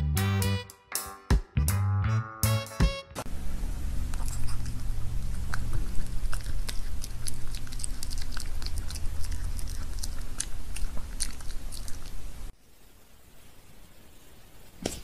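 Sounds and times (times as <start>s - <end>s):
low steady hum: 3.3s - 15.0s
pet crunching food: 4.0s - 12.6s.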